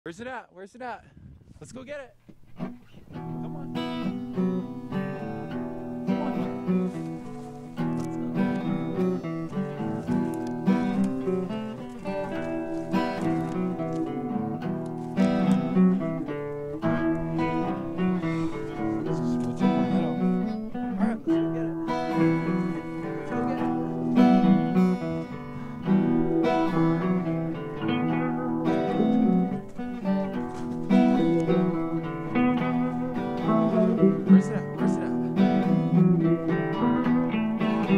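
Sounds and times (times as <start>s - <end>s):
acoustic guitar music: 0.1s - 37.9s.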